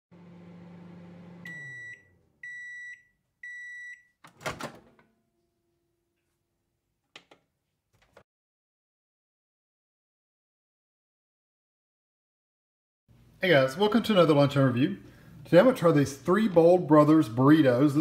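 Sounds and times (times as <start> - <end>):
microwave oven humming: 0.1 - 2.7
microwave beeps: 1.1 - 4.2.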